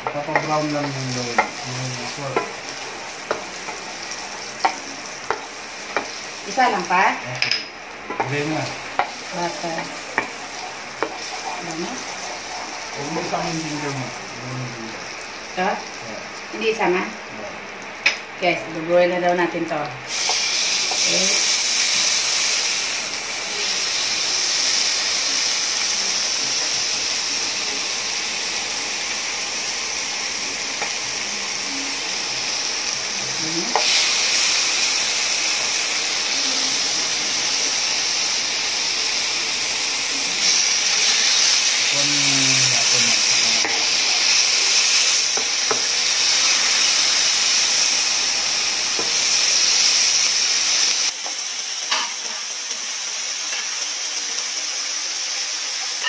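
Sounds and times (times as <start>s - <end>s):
meat sizzling in a pan: 0.0s - 56.0s.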